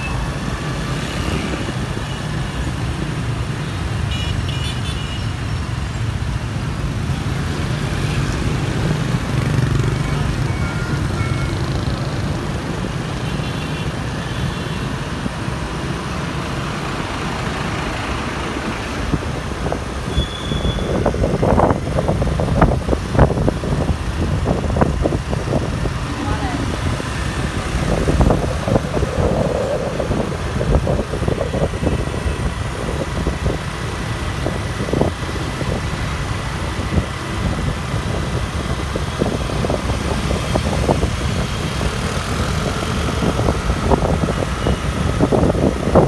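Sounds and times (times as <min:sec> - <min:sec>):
scooter engine and road noise: 0:00.0 - 0:46.0.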